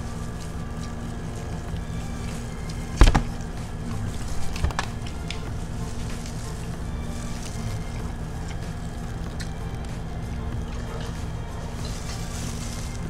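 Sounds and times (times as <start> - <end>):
plastic gloves crinkling: 0.0 - 13.0
steady low hum: 0.0 - 13.0.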